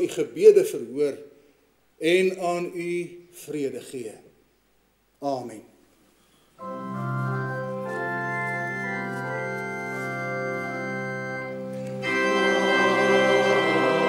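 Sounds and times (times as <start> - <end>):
organ playing held chords: 6.6 - 14.0.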